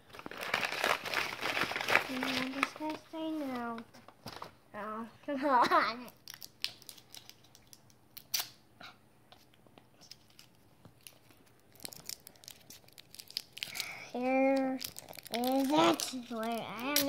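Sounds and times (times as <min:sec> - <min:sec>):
plastic wrapper crinkling and tearing: 0:00.0 - 0:04.5, 0:06.1 - 0:08.6, 0:10.0 - 0:17.0.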